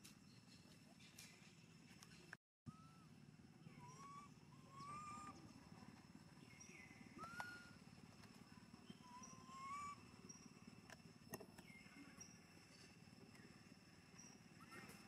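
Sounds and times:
low background hum: 0.0s - 15.0s
faint whistled animal calls: 0.5s - 10.6s, 14.1s - 15.0s.

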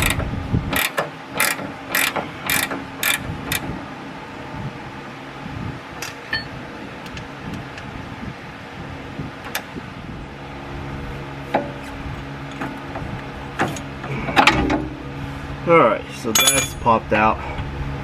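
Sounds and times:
wrench clicks and metal knocks: 0.0s - 3.6s, 16.3s - 16.9s
steady low hum: 0.0s - 18.0s.

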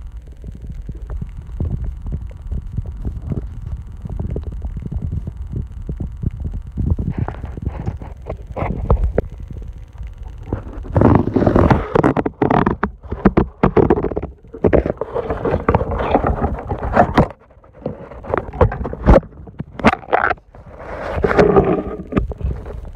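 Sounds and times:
muffled underwater handling noise: 0.0s - 22.9s
water rumble: 0.0s - 22.9s
knocks clicks and scraping: 10.4s - 22.7s.

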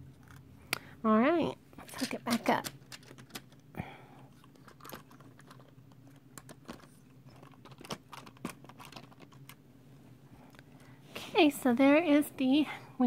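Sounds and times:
plastic toy parts clicking: 2.0s - 3.6s, 4.5s - 9.6s.

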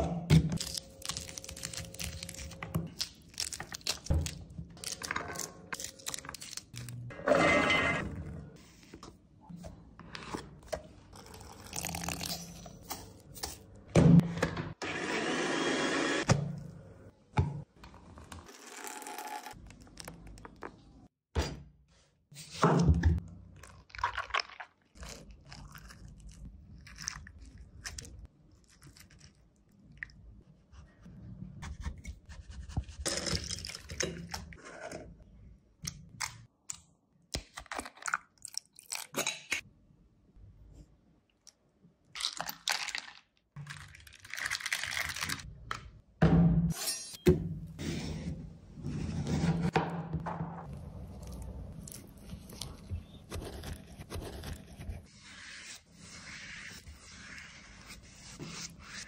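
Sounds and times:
blender running: 14.8s - 16.2s.

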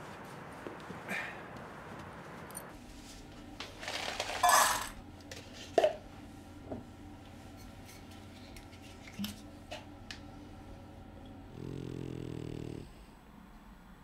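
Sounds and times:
bowl clinking: 4.4s - 5.0s.

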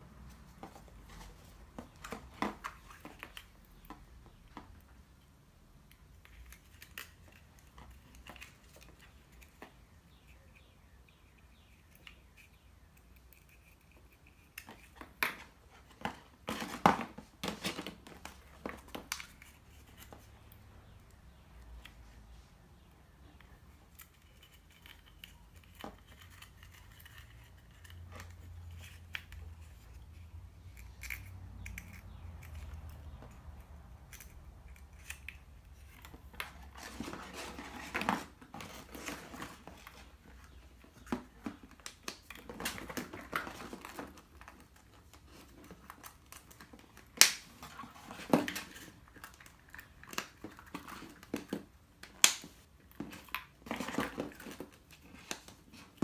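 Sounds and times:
sharp plastic snaps: 45.6s - 47.7s, 48.3s - 53.6s.

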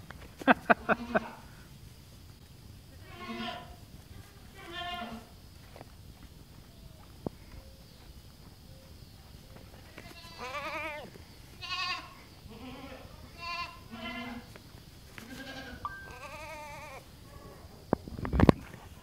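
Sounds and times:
baby goats bleating: 3.0s - 5.3s, 9.9s - 14.4s, 15.2s - 17.0s.

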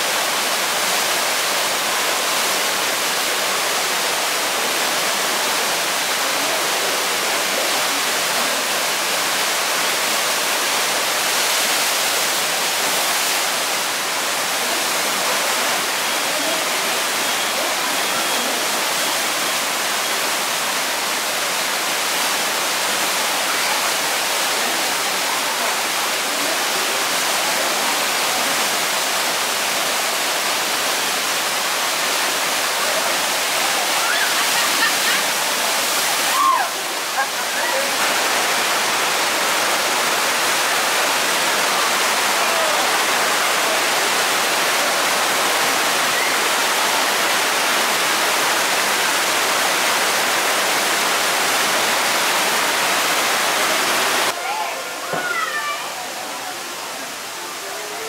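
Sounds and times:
whitewater rushing: 0.0s - 58.0s.

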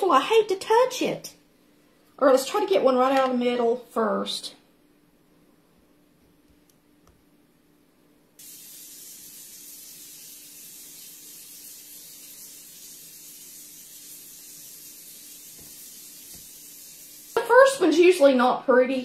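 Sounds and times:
steady high-pitched hiss: 8.4s - 18.4s.

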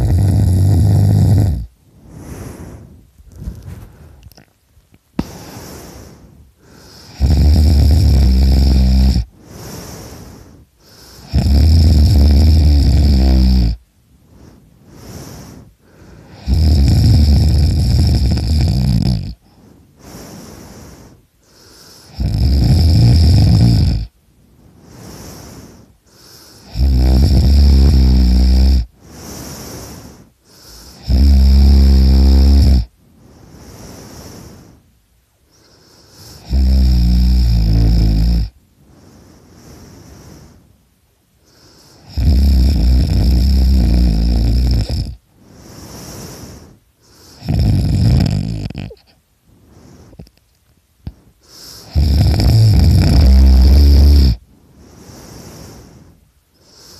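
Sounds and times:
person snoring loudly: 0.0s - 2.4s, 6.7s - 10.3s, 10.9s - 13.8s, 16.3s - 20.5s, 21.6s - 24.1s, 26.2s - 30.0s, 30.6s - 32.9s, 36.2s - 38.6s, 41.5s - 46.6s, 47.3s - 49.1s, 51.5s - 54.4s
quiet breaths: 0.0s - 56.9s.

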